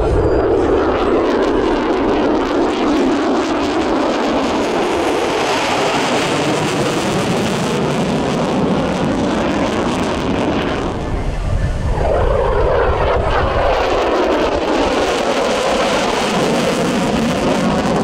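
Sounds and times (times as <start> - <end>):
jet engine roaring overhead: 0.0 - 18.0.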